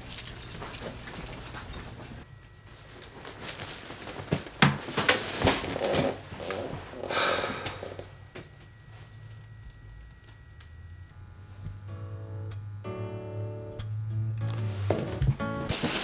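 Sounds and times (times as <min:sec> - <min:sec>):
plastic bag rustling: 0:02.5 - 0:07.1, 0:15.7 - 0:16.0
leather chair creaking: 0:03.6 - 0:08.1.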